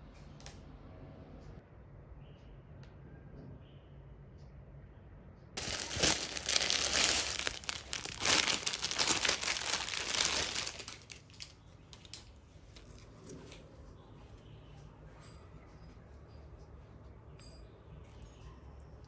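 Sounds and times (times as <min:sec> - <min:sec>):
packaging crinkling and tearing: 0:05.6 - 0:13.1.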